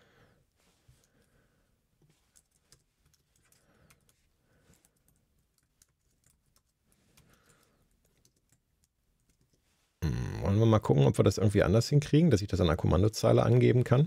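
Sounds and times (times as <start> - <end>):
faint keyboard typing: 2.0 - 9.7.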